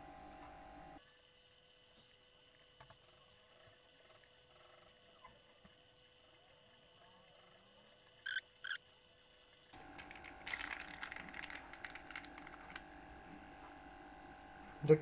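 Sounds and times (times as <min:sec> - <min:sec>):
plastic bag crinkling: 0:09.8 - 0:12.8.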